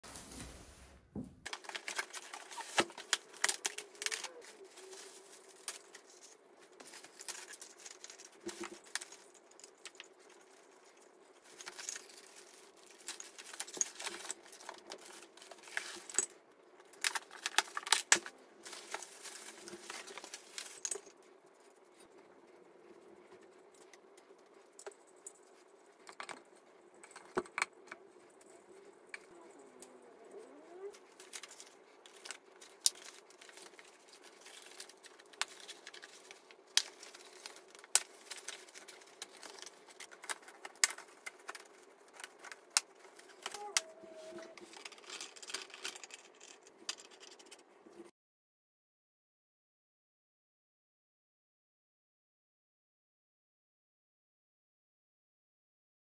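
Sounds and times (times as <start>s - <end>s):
plastic bags crinkling: 1.5s - 21.1s, 31.0s - 47.5s.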